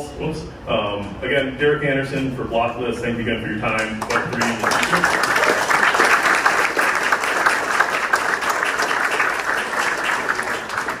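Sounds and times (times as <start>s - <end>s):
audience applauding: 3.8s - 11.0s.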